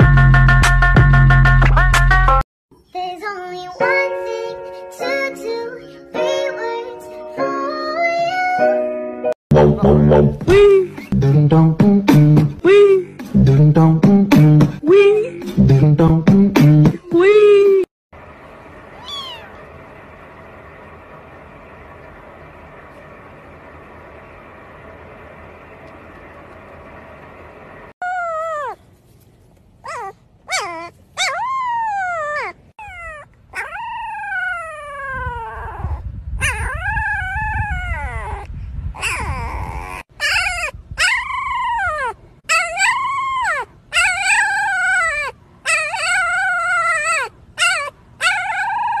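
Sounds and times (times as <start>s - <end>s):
puppies howling: 18.9s - 19.7s, 28.0s - 28.8s, 29.9s - 35.8s, 39.0s - 49.0s
wind rumble on microphone: 34.0s - 42.2s.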